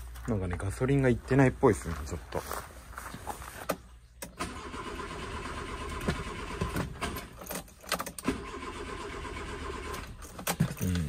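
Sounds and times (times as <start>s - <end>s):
starter motor cranking engine: 4.3s - 11.0s.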